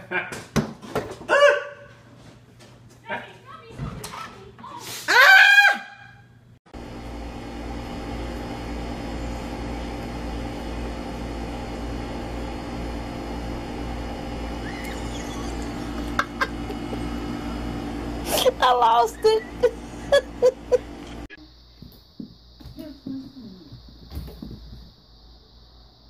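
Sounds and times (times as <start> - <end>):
machine hum: 6.7 - 26.0.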